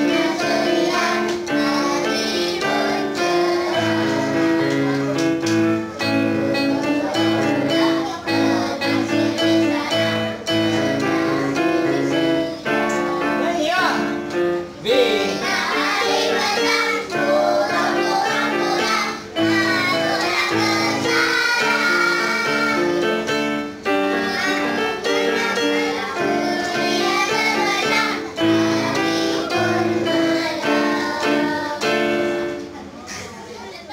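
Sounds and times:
children singing together: 0:00.0 - 0:32.7
electronic keyboard chords: 0:00.0 - 0:32.8.

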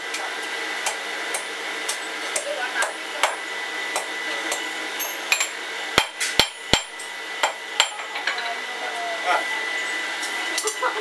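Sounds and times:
hammer striking on anvil: 0:00.8 - 0:08.1.

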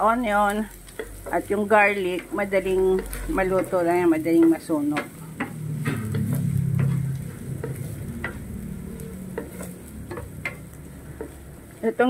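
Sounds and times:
vegetables sizzling in oil: 0:00.0 - 0:12.0
wooden spatula scraping a pan: 0:00.0 - 0:12.0.

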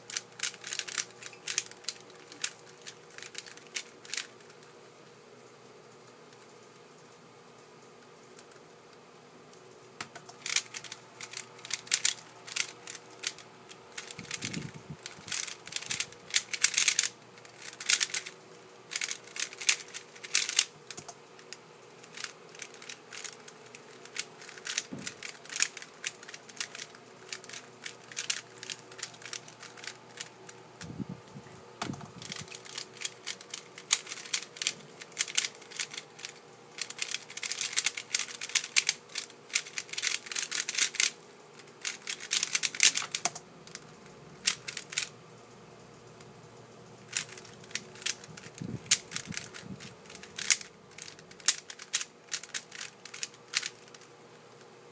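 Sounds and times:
puzzle cube layers clicking: 0:14.0 - 0:18.3, 0:18.9 - 0:21.2, 0:24.0 - 0:30.3, 0:31.9 - 0:41.2, 0:47.1 - 0:54.1.

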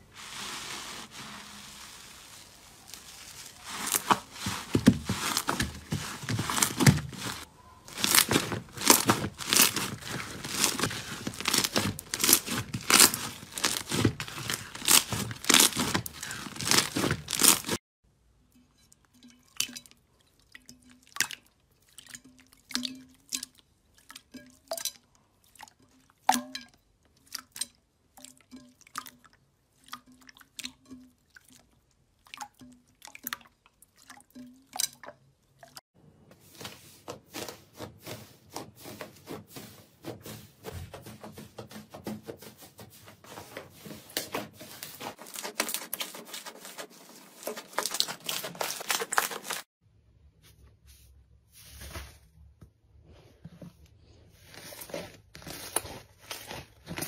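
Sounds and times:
slime squelching: 0:00.0 - 0:17.8, 0:43.5 - 0:49.7, 0:54.3 - 0:57.0.

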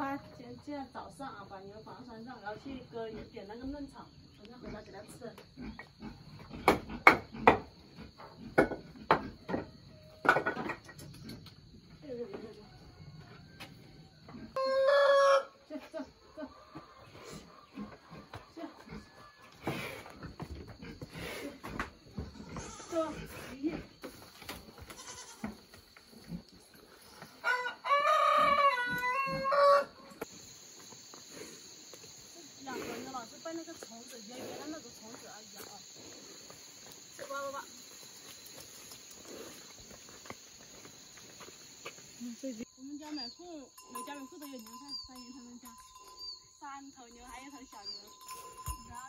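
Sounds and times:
high insect hum: 0:00.0 - 0:49.0
rooster crowing: 0:12.8 - 0:15.6, 0:27.4 - 0:30.1.

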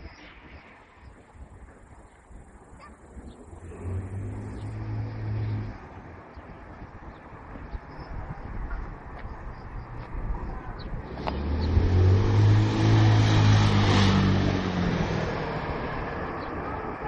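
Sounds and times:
car passing: 0:03.4 - 0:17.0.

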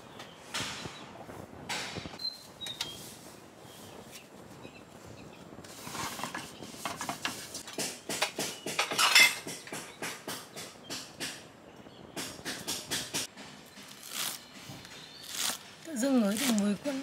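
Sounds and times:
utensils and dishes clinking: 0:06.8 - 0:09.9.

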